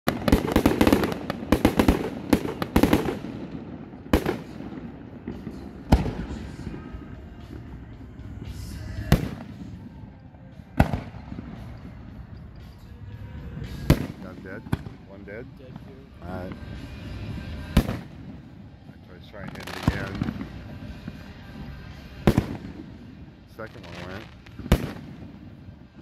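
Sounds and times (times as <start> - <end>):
crackling firework bangs: 0.1 - 7.6, 8.9 - 10.0, 10.8 - 12.0, 13.7 - 15.0, 17.6 - 18.5, 19.4 - 26.0.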